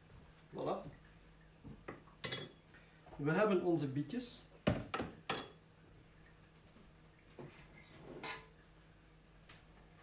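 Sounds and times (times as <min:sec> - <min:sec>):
crockery scraping and clinking: 0:07.8 - 0:08.5.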